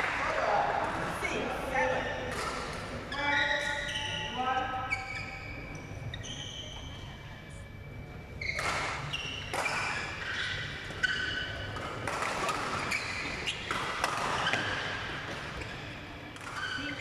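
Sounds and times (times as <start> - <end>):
shoes squeaking on court: 1.9 - 7.1, 8.4 - 17.0
rackets striking shuttlecock: 11.7 - 15.4.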